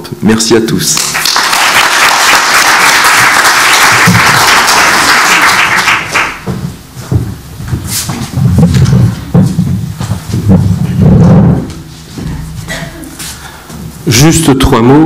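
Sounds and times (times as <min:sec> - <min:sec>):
audience applauding: 0:00.9 - 0:06.5.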